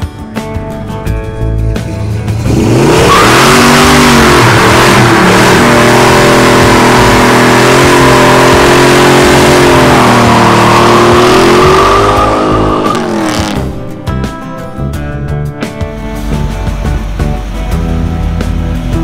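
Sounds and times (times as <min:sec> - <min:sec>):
car engine revving: 0:01.6 - 0:14.9.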